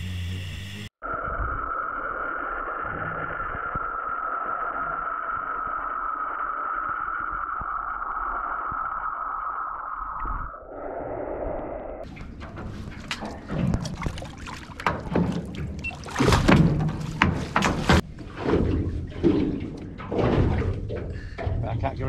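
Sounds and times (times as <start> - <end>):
water splashing: 12.0 - 22.0.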